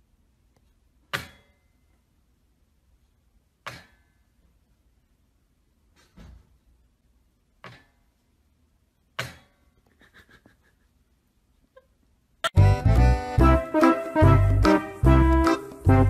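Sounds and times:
loud music: 12.5s - 16.0s.

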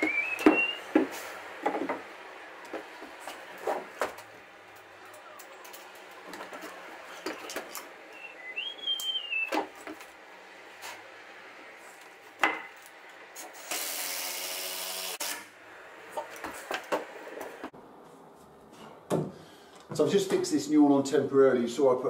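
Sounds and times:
cordless drill drilling into wood: 13.6s - 15.4s.

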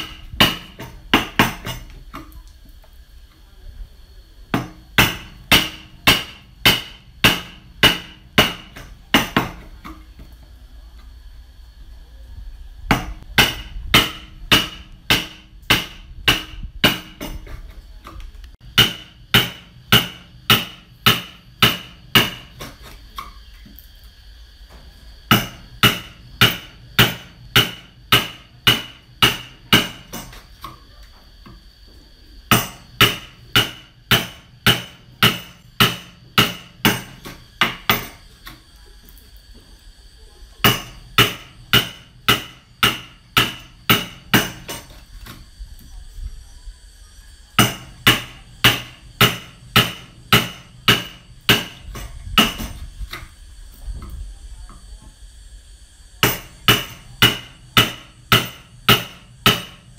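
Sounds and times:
hammer striking a chisel: 0.0s - 1.9s, 4.6s - 10.0s, 12.9s - 17.6s, 18.6s - 22.9s, 25.3s - 30.4s, 32.5s - 38.2s, 40.6s - 45.0s, 47.6s - 52.8s, 56.2s - 59.9s.

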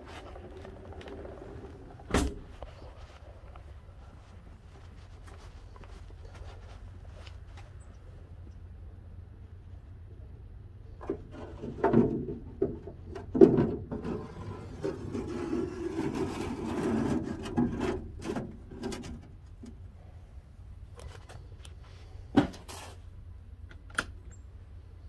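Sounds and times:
metal racks scraping: 11.0s - 19.4s.

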